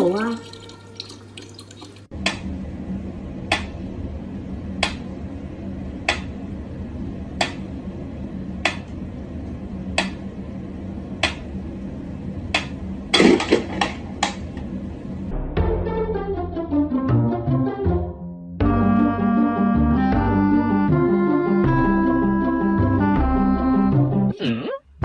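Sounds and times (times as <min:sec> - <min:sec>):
low steady hum: 0:00.0 - 0:15.5.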